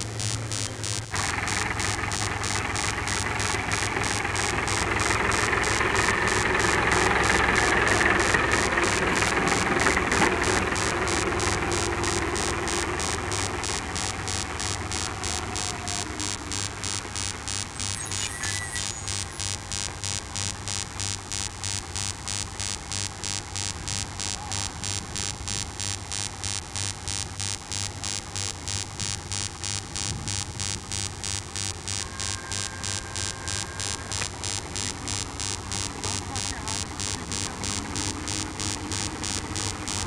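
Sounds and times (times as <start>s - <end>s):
electrical hum with static hiss: 0.0s - 40.0s
faint high tone: 1.2s - 20.0s, 31.9s - 40.0s.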